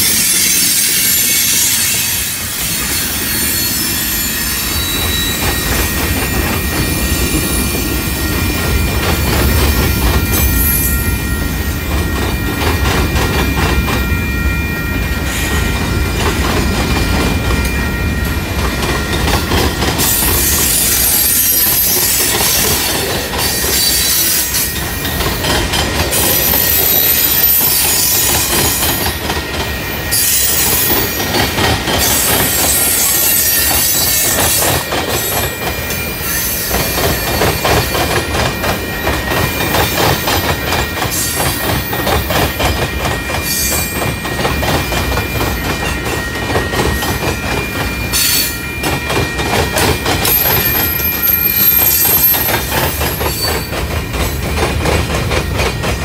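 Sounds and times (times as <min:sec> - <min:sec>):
wheel flanges squealing: 0:00.0 - 0:25.2
train wheels rumbling on rails: 0:00.0 - 0:56.0.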